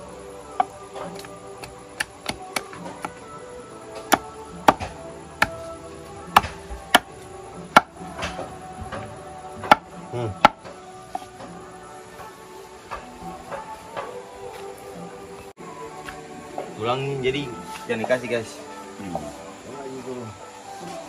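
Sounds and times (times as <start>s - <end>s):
background music: 0.0s - 21.0s
machete chopping on wood: 0.6s - 3.1s, 4.1s - 5.6s, 6.3s - 7.1s, 7.7s - 11.3s.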